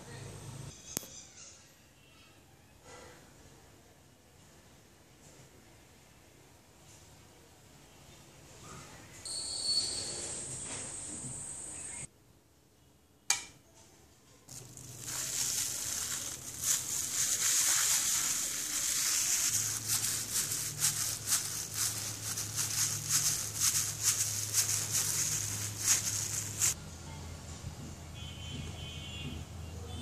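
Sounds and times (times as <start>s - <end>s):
plastic glove crinkling: 14.5s - 26.8s.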